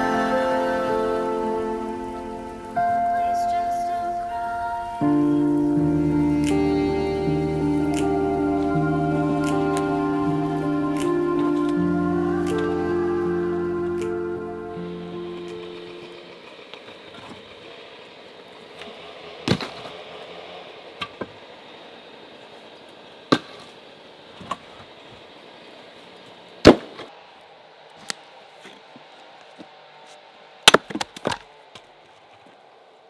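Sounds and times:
firewood logs knocking together: 30.7s - 31.5s.

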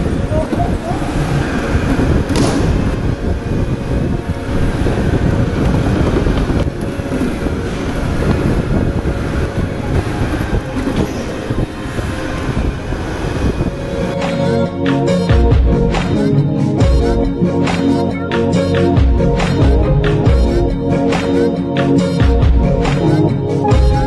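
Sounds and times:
go-kart tyres rumbling on track: 0.0s - 16.3s.

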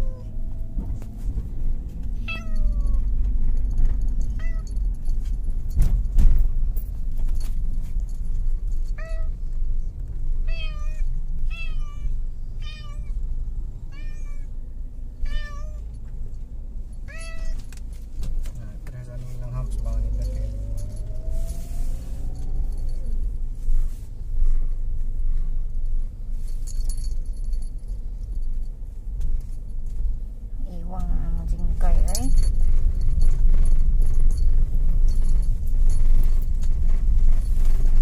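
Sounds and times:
car low rumble: 0.0s - 38.0s
cat meowing: 2.2s - 3.1s, 4.3s - 4.7s, 9.0s - 9.4s, 10.4s - 13.2s, 13.9s - 14.5s, 15.2s - 15.9s, 17.1s - 17.6s.

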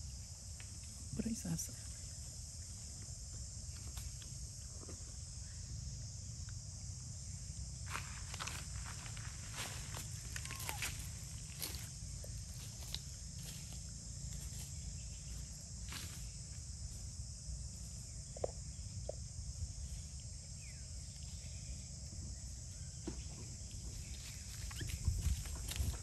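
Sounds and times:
high insect drone: 0.0s - 26.0s
clicks and rustles in dry leaves: 7.9s - 13.7s, 23.9s - 26.0s.

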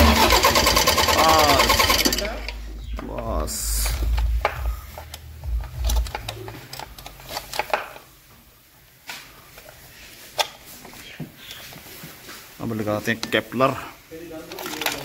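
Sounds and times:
low mechanical rumble: 0.0s - 8.3s.

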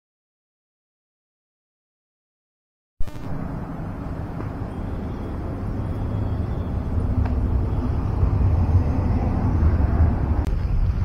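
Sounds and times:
road traffic rumble: 3.1s - 11.0s.

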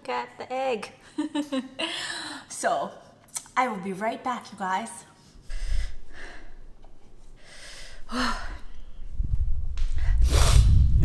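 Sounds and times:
woman breathing hard and gasping: 1.8s - 2.5s, 5.3s - 6.8s, 7.4s - 9.0s.

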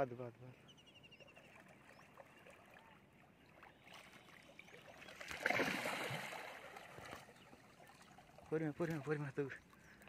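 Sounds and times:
fish splashing in water: 3.6s - 9.0s.

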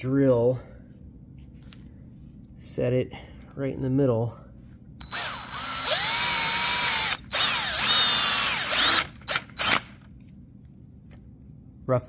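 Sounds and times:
drill motor whine: 5.0s - 9.9s.

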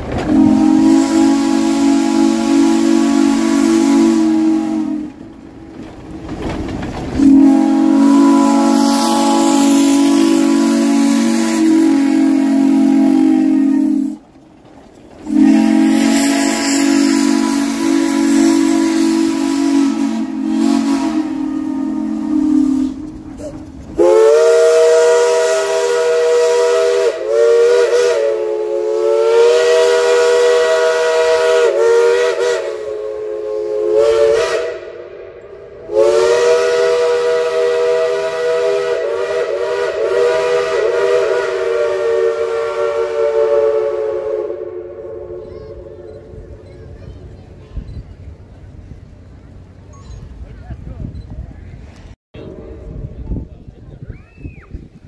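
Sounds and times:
low steam whistle chord: 0.3s - 5.2s, 7.2s - 14.2s, 15.3s - 23.1s, 24.0s - 46.4s.

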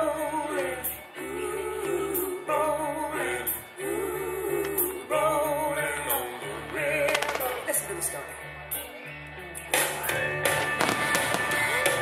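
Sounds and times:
person singing: 0.0s - 8.4s.

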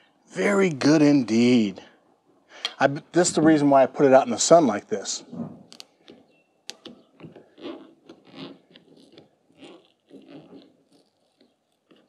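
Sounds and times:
rubber seal scraping: 5.4s - 12.0s.

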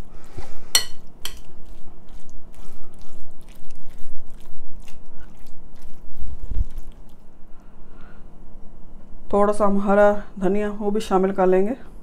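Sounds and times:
spoon stirring wet mixture: 0.7s - 7.3s.

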